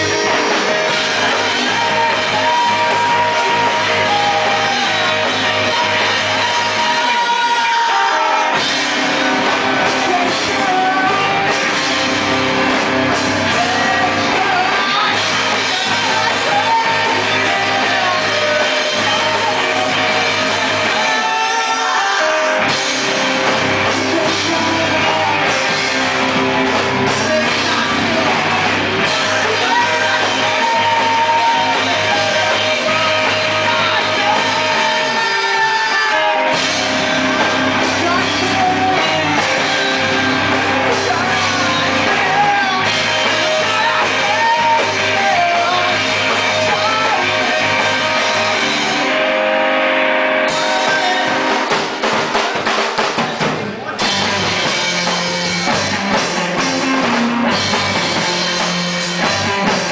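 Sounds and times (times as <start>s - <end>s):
lead vocal singing: 0.0s - 54.4s
live rock band playing: 0.0s - 59.9s.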